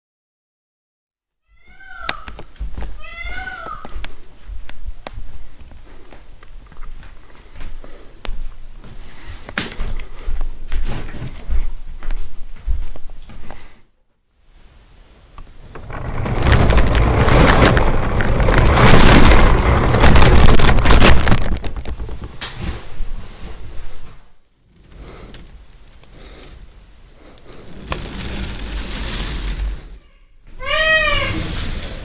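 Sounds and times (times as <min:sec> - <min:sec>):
toy coaster car rattling on track: 0:15.6 - 0:22.5, 0:27.8 - 0:30.0.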